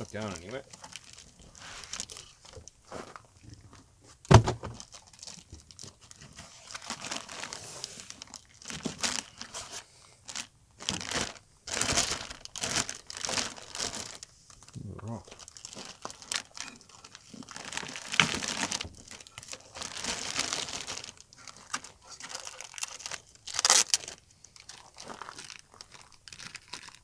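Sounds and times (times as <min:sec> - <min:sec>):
plastic bag crinkling: 0:00.0 - 0:03.3, 0:04.7 - 0:27.0
foam packing rubbing: 0:01.5 - 0:03.2.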